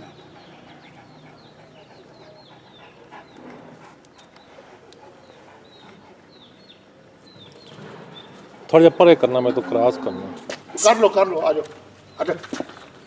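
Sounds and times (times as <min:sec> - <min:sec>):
dog panting: 0:00.0 - 0:07.4, 0:10.5 - 0:11.7
small birds chirping: 0:00.0 - 0:13.0.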